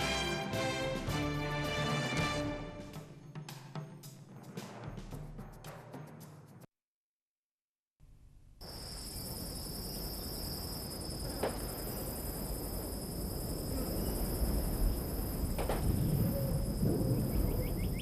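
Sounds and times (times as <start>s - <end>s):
high-pitched cricket chorus: 8.6s - 18.0s.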